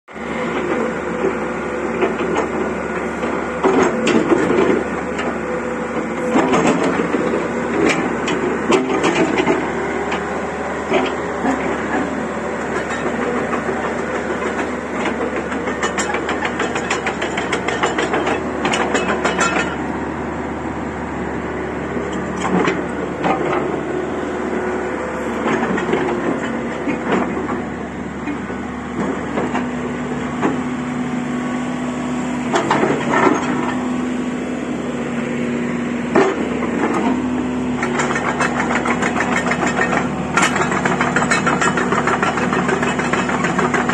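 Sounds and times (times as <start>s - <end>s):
excavator diesel engine running: 0.1s - 43.9s
steel tracks clanking: 6.0s - 20.0s, 36.1s - 43.9s.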